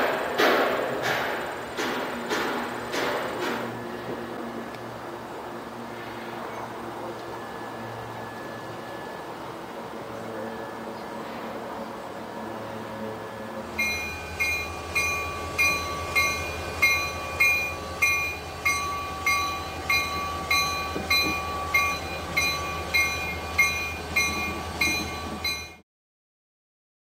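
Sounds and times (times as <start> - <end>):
locomotive engine rumble: 0.0 - 25.8
locomotive bell ringing: 13.6 - 25.8.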